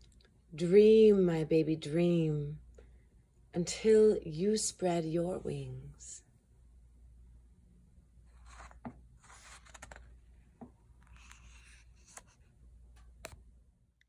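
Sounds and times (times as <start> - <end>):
book pages turning: 8.3 - 13.4.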